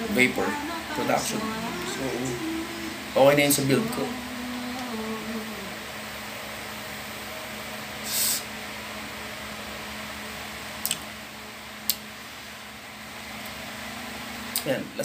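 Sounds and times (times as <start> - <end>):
low hum: 0.0 - 7.9
breathy puff of vaping: 8.0 - 8.5.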